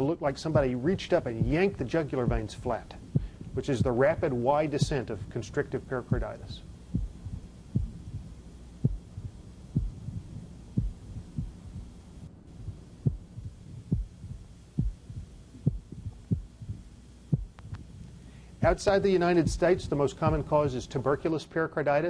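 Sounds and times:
low steady hum: 0.0s - 22.0s
heartbeat thuds through stethoscope: 0.5s - 5.3s, 6.1s - 18.0s, 18.6s - 20.8s
pericardial knock: 7.0s - 11.9s.

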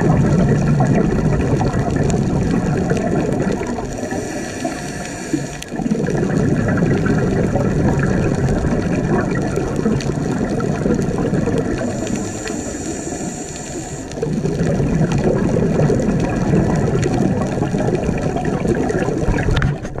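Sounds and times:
regulator bubbling underwater: 0.0s - 20.0s
thin hiss of inhaled air: 3.9s - 5.7s, 11.8s - 14.2s.

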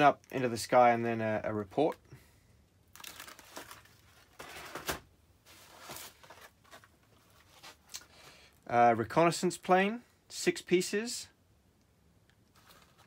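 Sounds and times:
plastic packaging crinkling: 2.9s - 8.1s, 12.5s - 13.0s.

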